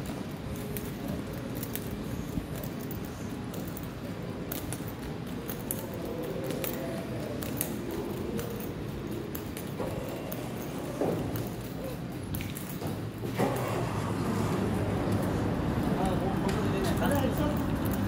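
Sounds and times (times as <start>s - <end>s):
footsteps on tiled floor: 4.5s - 18.0s.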